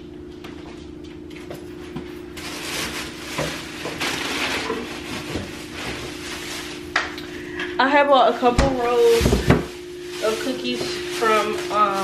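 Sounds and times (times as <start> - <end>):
refrigerator hum: 0.0 - 12.0
packages rustling: 2.2 - 7.4, 8.4 - 12.0.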